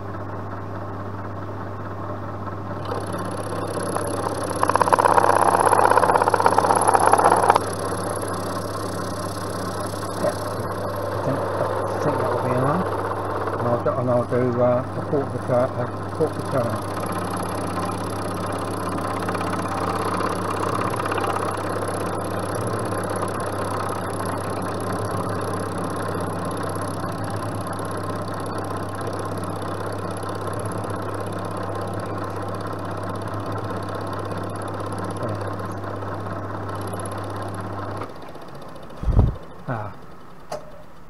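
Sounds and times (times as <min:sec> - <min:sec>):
milling machine motor hum: 0:00.0 - 0:41.0
end mill grinding metal: 0:02.8 - 0:40.8.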